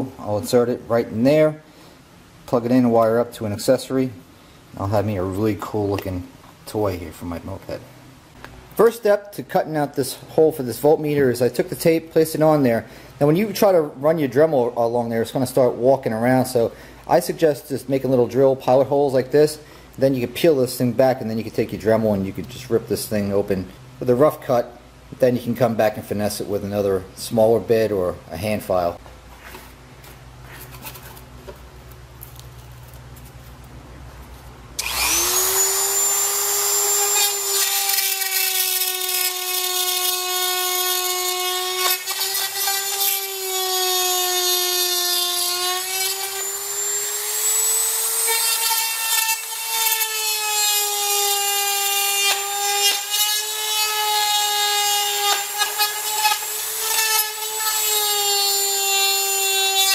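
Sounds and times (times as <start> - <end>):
rotary tool whining cutting plastic: 34.8 - 59.9.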